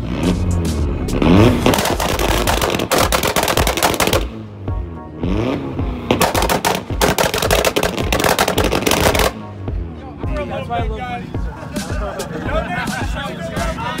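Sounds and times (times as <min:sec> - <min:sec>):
exhaust pops and bangs: 0:00.0 - 0:09.4
car engine revving: 0:00.0 - 0:14.0.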